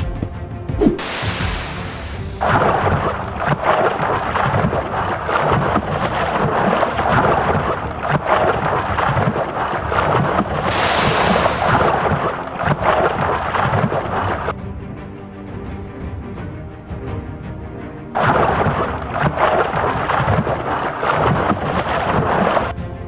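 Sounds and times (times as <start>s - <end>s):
water splashing and churning: 0.7s - 14.6s, 18.1s - 22.9s
high hiss: 1.0s - 2.4s.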